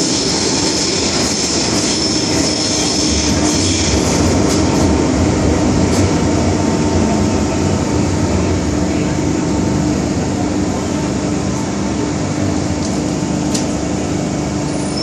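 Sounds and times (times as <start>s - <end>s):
train wheels rumbling in tunnel: 0.0s - 15.0s.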